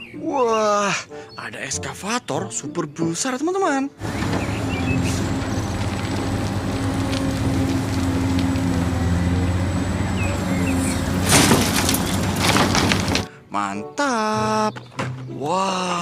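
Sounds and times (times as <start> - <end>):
excavator diesel engine running: 4.0 - 13.3
loud clattering burst: 4.0 - 13.3.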